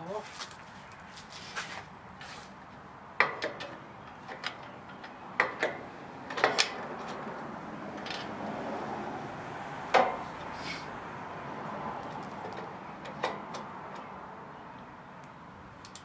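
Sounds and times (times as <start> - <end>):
hardware clicks and knocks on metal: 3.2 - 7.4, 15.8 - 16.0.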